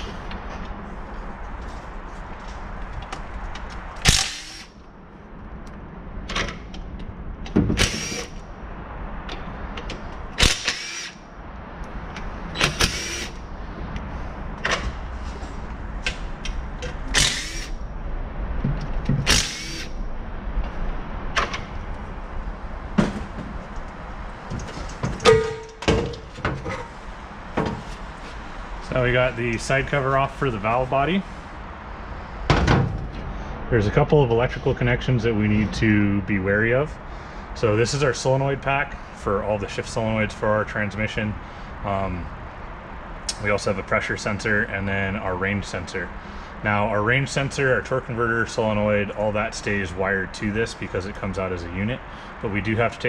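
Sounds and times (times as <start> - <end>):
background hum: 0.0 - 53.0
cordless drill running bolts out: 7.8 - 8.4, 12.6 - 13.4, 19.3 - 19.9.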